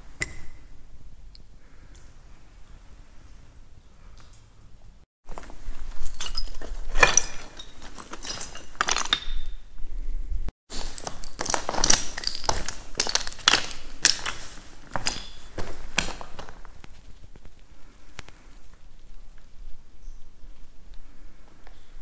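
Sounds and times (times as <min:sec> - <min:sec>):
footsteps crunching on broken slate: 0:10.7 - 0:17.5.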